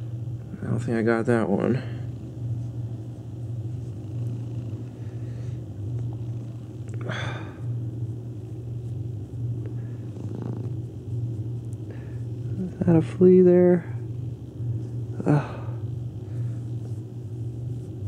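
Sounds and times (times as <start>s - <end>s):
cat purring: 2.1s - 7.0s, 8.0s - 13.1s.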